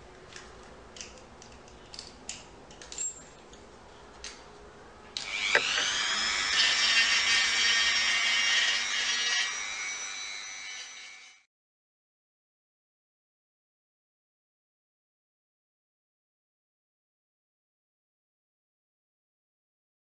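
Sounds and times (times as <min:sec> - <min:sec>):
rotary tool whining: 0:05.2 - 0:11.5.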